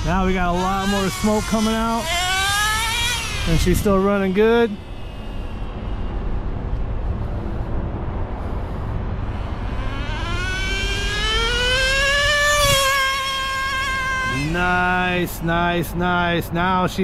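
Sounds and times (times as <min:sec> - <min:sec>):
nitro engine revving: 0:00.0 - 0:06.8, 0:09.0 - 0:15.4.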